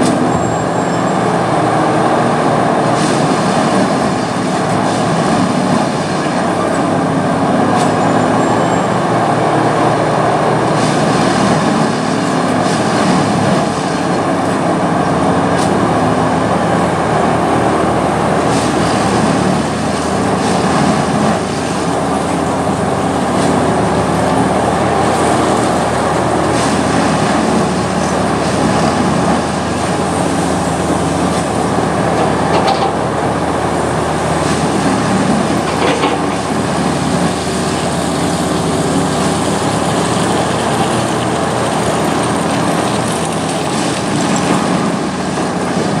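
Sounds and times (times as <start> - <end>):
diesel engine running: 0.0 - 46.0.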